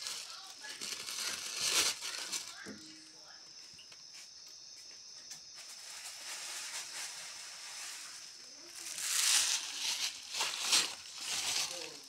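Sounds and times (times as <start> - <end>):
plastic bags crinkling: 0.0 - 3.1, 5.7 - 12.0.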